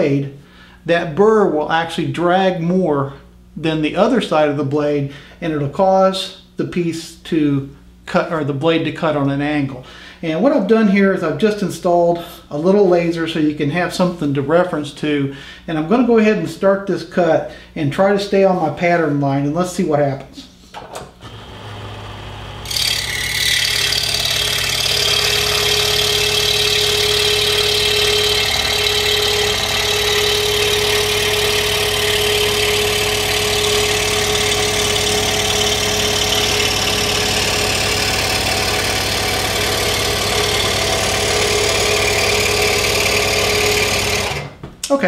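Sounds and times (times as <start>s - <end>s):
scroll saw cutting wood: 21.2s - 44.6s.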